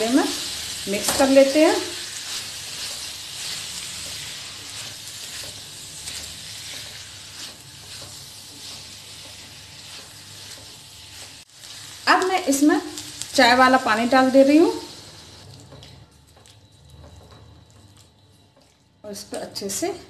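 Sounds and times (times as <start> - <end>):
food sizzling in a pan: 0.0 - 16.0
spatula scraping: 0.4 - 12.0.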